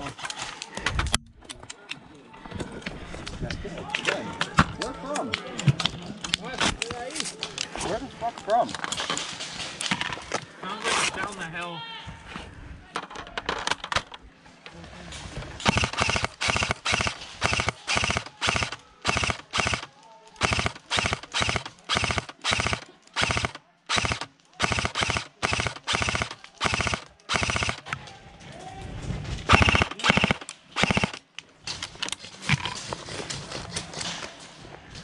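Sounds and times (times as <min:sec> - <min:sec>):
airsoft rifle firing bursts: 0:15.6 - 0:27.9, 0:29.5 - 0:31.2.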